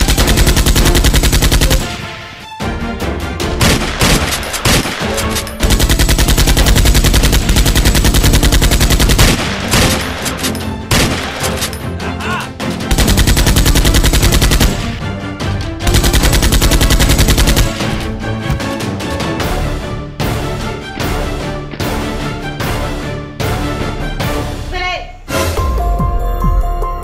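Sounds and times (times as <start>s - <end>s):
background music: 0.0s - 27.0s
automatic gunfire sound effect: 3.6s - 11.7s, 15.9s - 17.9s.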